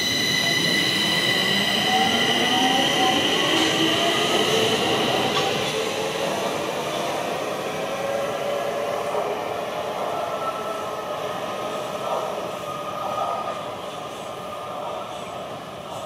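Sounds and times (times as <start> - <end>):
train wheels rumbling on rails: 0.0 - 7.3.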